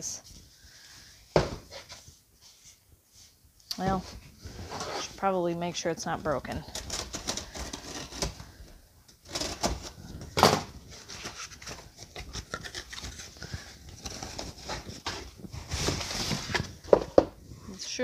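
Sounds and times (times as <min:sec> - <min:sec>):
cardboard box being unpacked: 0:06.7 - 0:08.6, 0:09.2 - 0:17.3.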